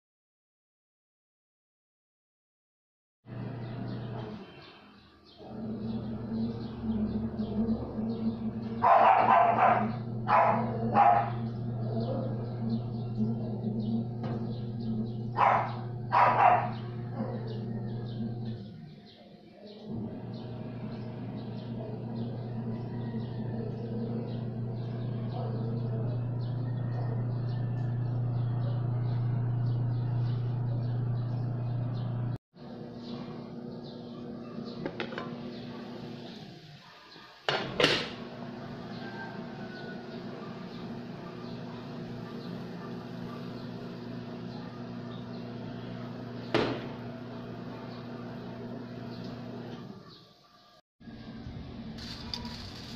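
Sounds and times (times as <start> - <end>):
small birds chirping: 3.5 - 37.4, 38.7 - 50.8
steady low hum: 5.4 - 18.9, 19.8 - 36.3
dog barking: 8.8 - 12.4, 15.4 - 17.7, 25.3 - 26.2, 40.4 - 43.7, 44.5 - 45.3.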